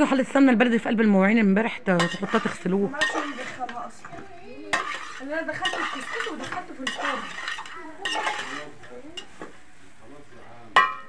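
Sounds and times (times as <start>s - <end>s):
metal spoon scraping in pot: 1.7s - 9.7s
spoon clinking pot side: 2.0s - 3.8s, 4.7s - 9.6s, 10.8s - 11.0s.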